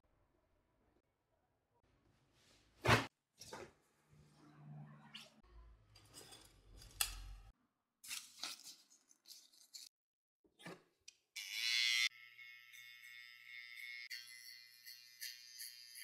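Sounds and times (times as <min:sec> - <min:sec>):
hair trimmer buzzing: 0:11.4 - 0:16.0.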